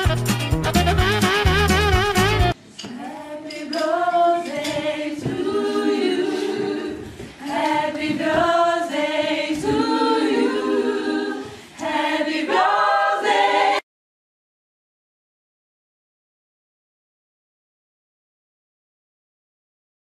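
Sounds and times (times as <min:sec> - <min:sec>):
voices singing unaccompanied: 0:02.8 - 0:13.8.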